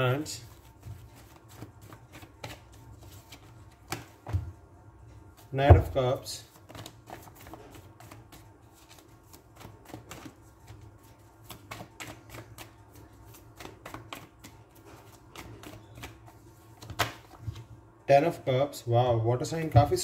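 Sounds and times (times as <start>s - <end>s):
cards being shuffled: 0.4s - 4.4s, 6.5s - 17.7s.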